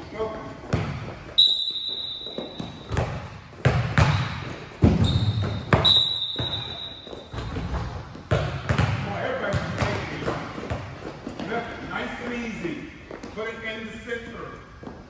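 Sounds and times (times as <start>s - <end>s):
basketballs bouncing on gym floor: 0.5s - 11.9s.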